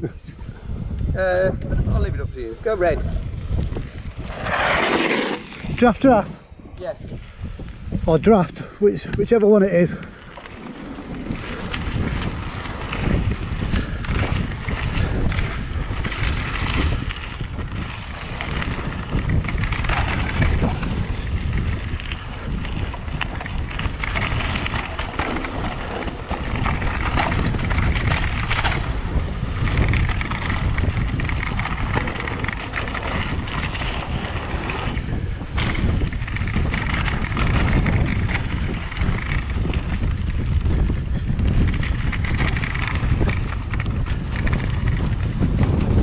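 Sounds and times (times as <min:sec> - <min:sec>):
wind buffeting microphone: 0:00.0 - 0:46.0
bike tyres crunching on gravel: 0:03.4 - 0:06.2, 0:09.2 - 0:46.0
bike knocking over bumps: 0:22.6 - 0:45.8.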